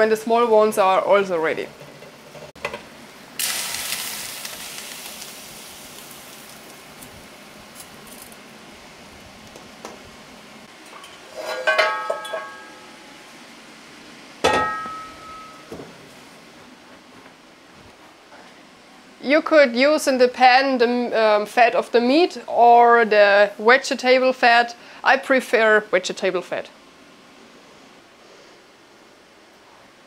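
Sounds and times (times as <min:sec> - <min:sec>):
hiss: 0:03.4 - 0:06.7
kitchenware clinking: 0:10.9 - 0:13.1, 0:14.4 - 0:15.8.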